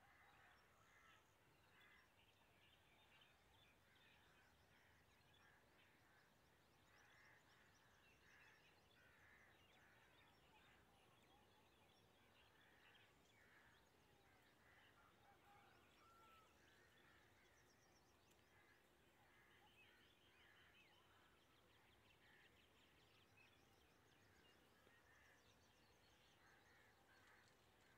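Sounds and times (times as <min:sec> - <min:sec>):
low steady hiss: 0:00.0 - 0:27.9
faint bird calls: 0:06.9 - 0:27.9.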